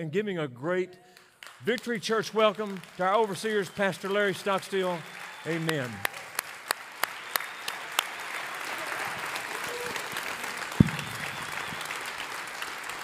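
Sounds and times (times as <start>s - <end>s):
audience applauding: 2.2s - 13.0s
sharp single claps: 10.7s - 12.0s
loud thump: 10.8s - 11.4s.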